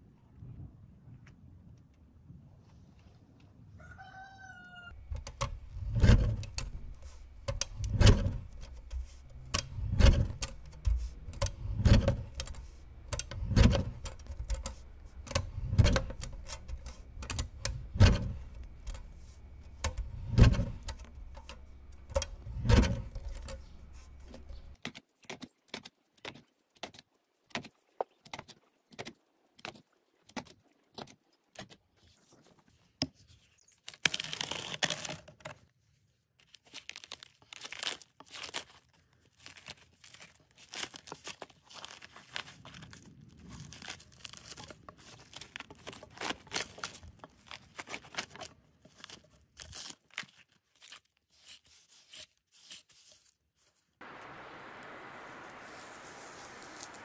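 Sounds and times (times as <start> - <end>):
paper cutter blade chopping: 5.1 - 24.7.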